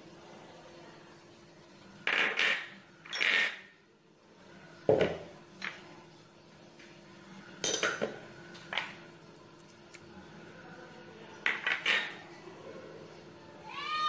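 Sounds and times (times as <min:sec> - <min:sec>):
utensils clinking on metal pot: 0:02.1 - 0:03.7, 0:07.6 - 0:08.2, 0:11.4 - 0:12.2.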